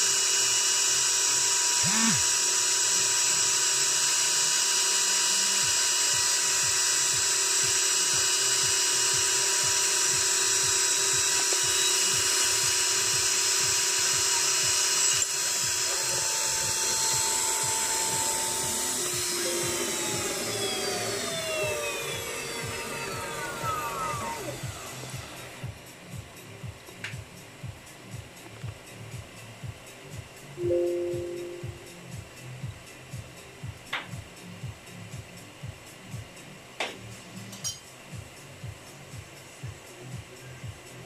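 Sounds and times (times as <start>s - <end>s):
engraver spindle whining: 0.0s - 25.7s.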